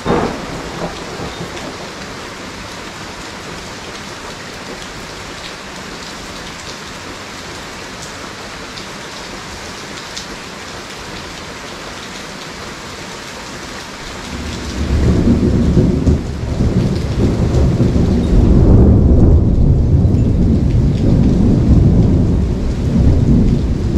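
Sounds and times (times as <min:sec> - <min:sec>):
rolling thunder: 0:00.0 - 0:03.2, 0:14.1 - 0:23.9
heavy rain: 0:00.0 - 0:23.9.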